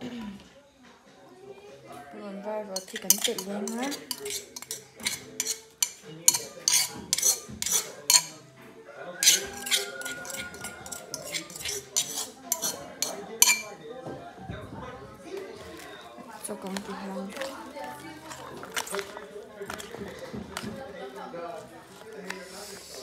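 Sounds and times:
metal spoon striking cup: 2.8s - 8.4s, 9.2s - 13.7s.

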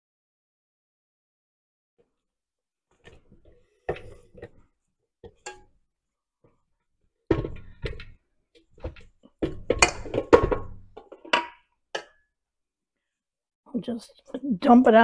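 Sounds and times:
metal bowl knocks and clanks: 3.1s - 4.6s, 5.2s - 5.8s, 7.3s - 12.2s.

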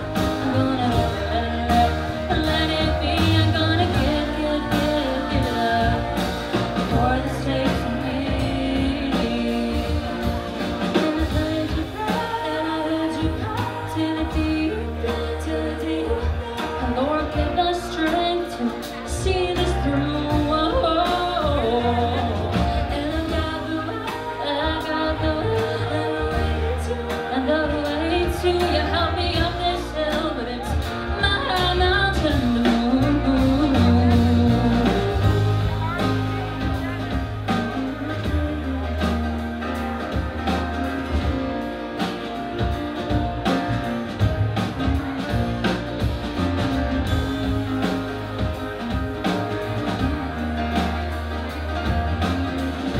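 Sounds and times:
women singing: 0.0s - 37.0s
electric bass: 0.0s - 52.9s
keyboard: 0.0s - 52.9s.

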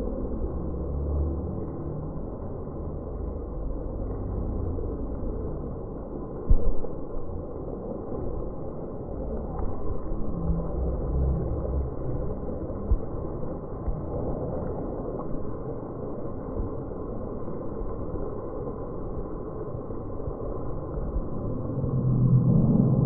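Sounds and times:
heavy rain pouring: 8.4s - 23.0s.

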